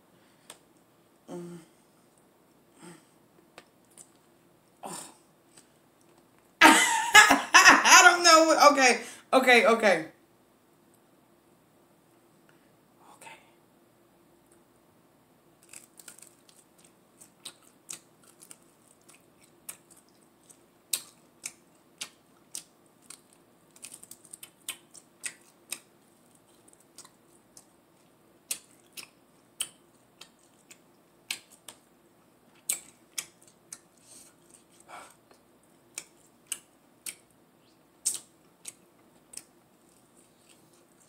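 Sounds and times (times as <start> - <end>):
person biting and chewing: 15.6 - 31.8, 32.6 - 37.3, 38.0 - 41.0
mouth and lip clicks: 28.5 - 31.8, 32.6 - 37.3, 38.0 - 41.0.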